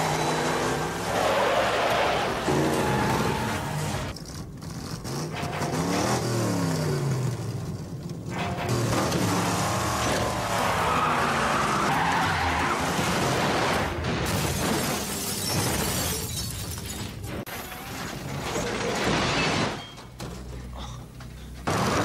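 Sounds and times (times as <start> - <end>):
tires skidding: 0.0 - 7.7, 8.3 - 14.0
crashing and shattering: 8.3 - 20.7.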